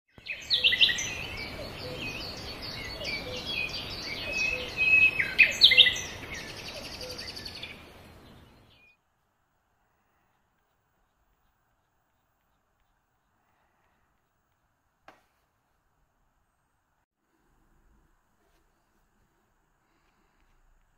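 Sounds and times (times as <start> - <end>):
bird chirping and trilling: 0.1 - 9.0.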